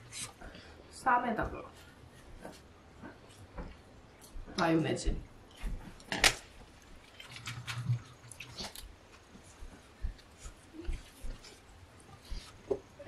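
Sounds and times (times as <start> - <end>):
person chewing food: 2.1 - 4.6, 5.4 - 13.0.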